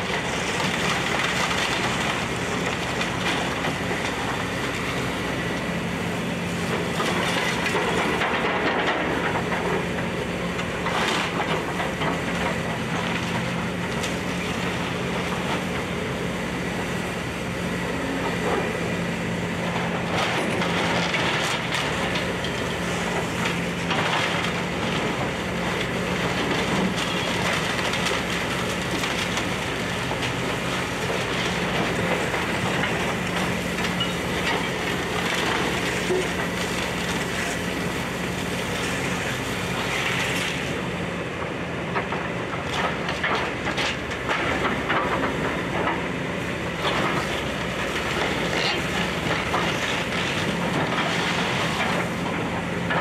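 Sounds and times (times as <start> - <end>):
excavator diesel engine running: 0.0 - 53.0
wooden debris crunching: 17.6 - 40.7, 41.9 - 53.0.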